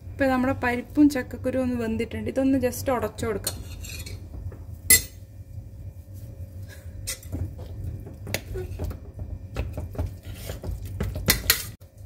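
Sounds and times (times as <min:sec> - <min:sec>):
spoon clinking and scraping metal pot: 0:03.4 - 0:04.2, 0:04.9 - 0:05.2, 0:07.0 - 0:07.4, 0:10.2 - 0:11.8
spoon mashing food in pot: 0:07.0 - 0:12.0.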